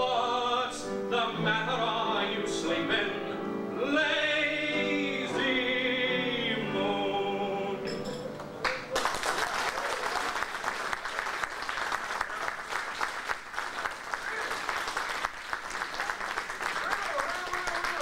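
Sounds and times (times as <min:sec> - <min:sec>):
person singing: 0:00.0 - 0:08.3
audience applauding: 0:08.6 - 0:18.0.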